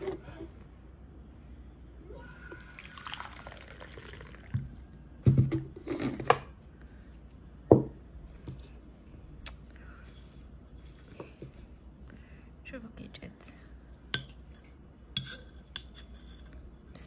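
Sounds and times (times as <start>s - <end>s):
drink trickling into a cup: 2.5s - 4.9s
crockery knocking on table: 7.7s - 8.0s.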